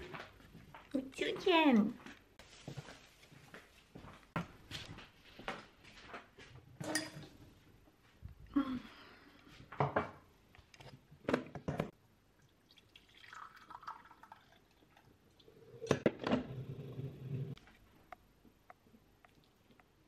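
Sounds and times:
hot drink poured into mug: 12.6s - 15.8s.

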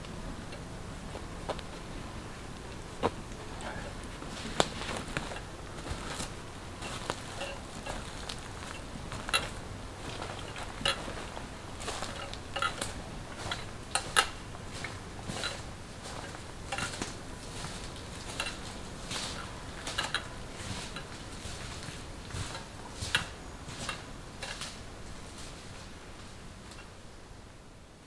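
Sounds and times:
footsteps crunching on dry leaves: 3.0s - 26.3s.

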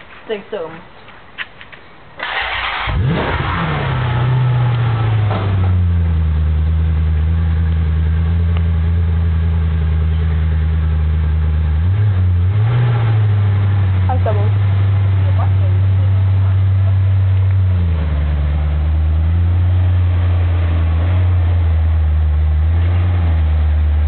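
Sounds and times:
car engine revving then idling: 2.2s - 24.0s.

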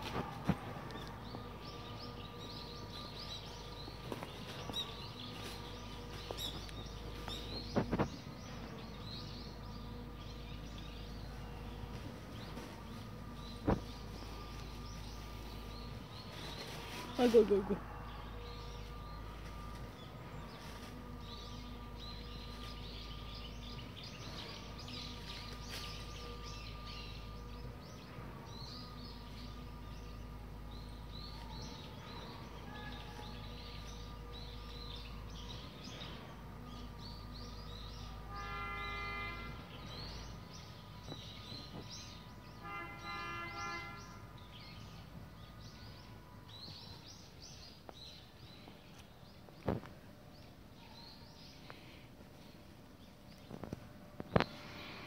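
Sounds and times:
low background hum: 0.0s - 42.6s
small birds chirping: 0.0s - 55.0s
horn-like tone: 38.2s - 39.7s, 42.6s - 44.2s.

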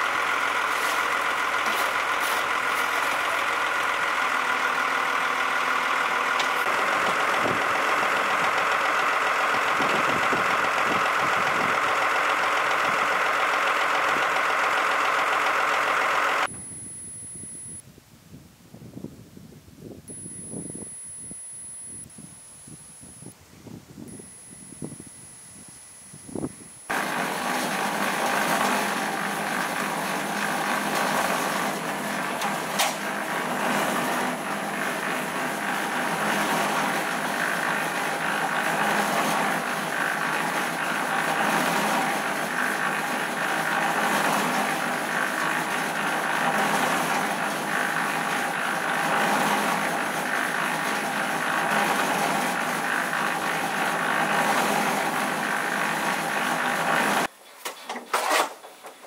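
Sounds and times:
concrete mixer running: 0.0s - 16.5s, 26.7s - 57.3s.

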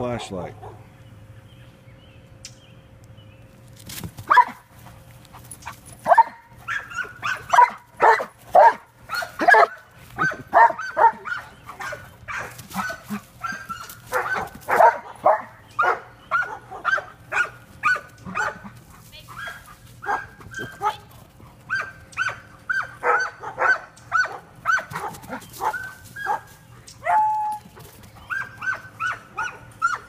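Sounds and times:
dog barking and yipping: 4.3s - 4.7s, 6.0s - 21.1s, 21.7s - 27.6s, 28.2s - 30.0s.

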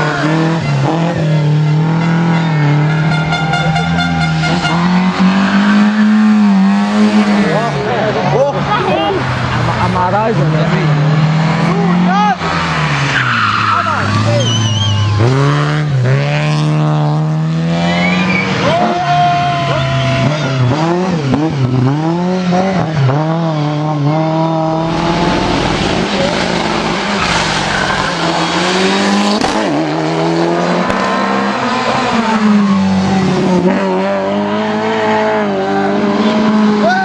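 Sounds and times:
rally car engines revving: 0.0s - 37.0s
tyre squeal: 13.1s - 15.2s, 24.8s - 29.2s.

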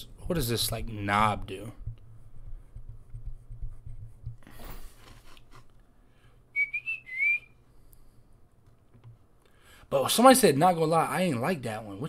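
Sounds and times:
rustling noise: 0.2s - 5.8s
person whistling: 6.5s - 7.6s.

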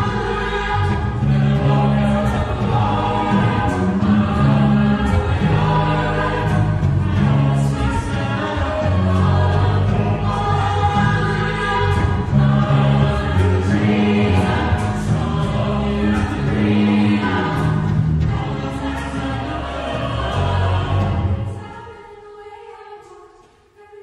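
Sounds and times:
mixed choir singing: 0.0s - 24.0s.

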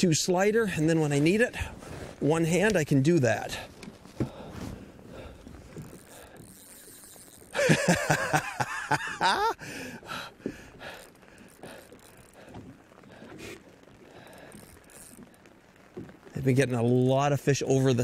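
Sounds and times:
fishing reel drag buzzing: 5.1s - 8.7s, 10.0s - 16.3s.

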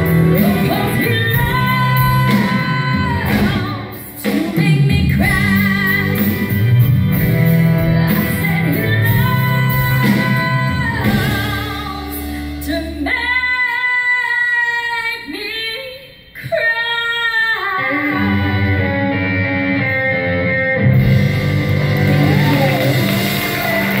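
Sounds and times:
woman singing with vibrato: 0.0s - 6.7s, 7.6s - 18.9s
live band of guitars keyboards drums: 0.0s - 13.0s, 18.2s - 24.0s.

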